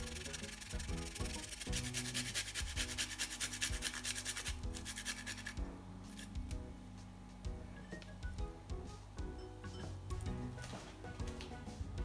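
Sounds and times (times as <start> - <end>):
ginger rasping on metal grater: 0.0 - 5.6.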